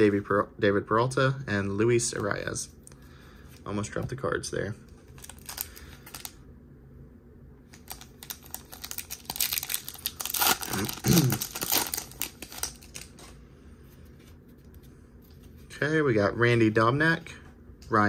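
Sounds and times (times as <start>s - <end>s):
wrapper tearing and crinkling: 5.1s - 6.4s, 7.7s - 13.2s.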